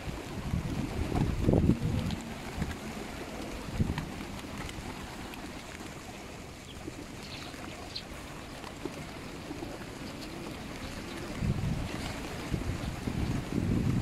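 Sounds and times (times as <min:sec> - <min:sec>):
pigeon wing flaps: 0:00.0 - 0:05.9
wind buffeting microphone: 0:00.0 - 0:07.8, 0:09.0 - 0:14.0.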